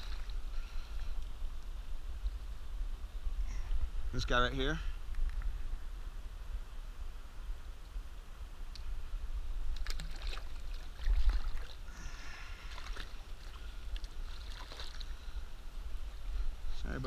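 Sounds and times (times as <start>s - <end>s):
stream water splashing: 0.0s - 0.5s, 9.7s - 15.4s.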